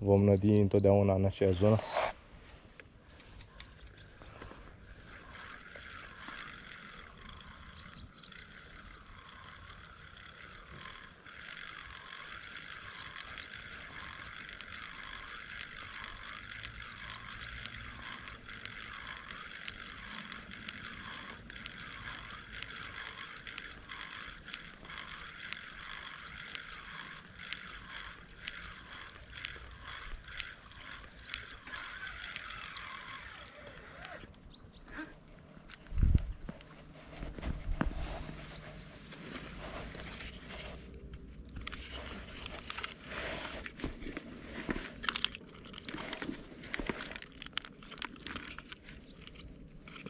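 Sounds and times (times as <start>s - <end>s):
fishing reel being wound: 0.2s - 50.0s.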